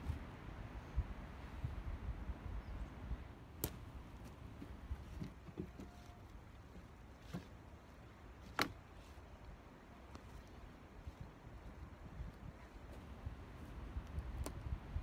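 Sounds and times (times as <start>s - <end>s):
logs knocking together: 3.6s - 7.6s.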